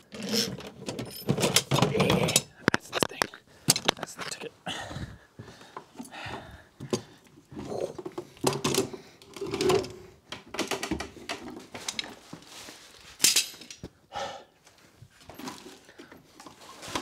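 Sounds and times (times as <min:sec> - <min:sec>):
knocks and clatter on wooden ladder: 0:00.4 - 0:04.1, 0:06.4 - 0:12.2.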